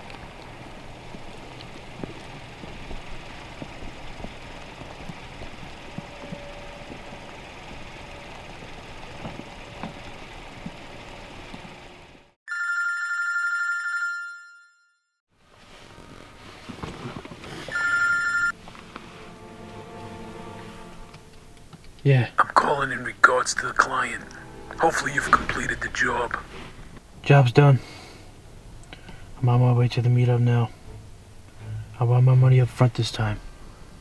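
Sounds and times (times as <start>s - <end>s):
telephone ringing: 12.5s - 15.1s, 17.7s - 18.6s.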